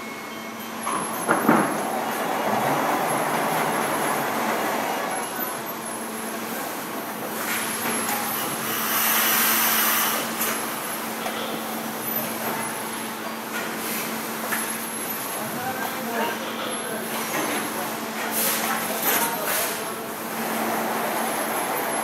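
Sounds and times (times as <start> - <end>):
factory machinery hum: 0.0 - 22.0.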